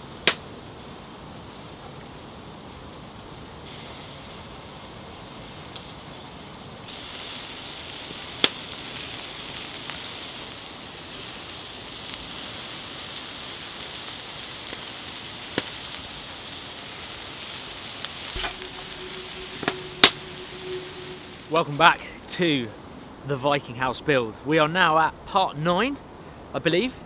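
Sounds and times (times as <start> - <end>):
skewers sizzling on griddle: 6.8 - 21.6.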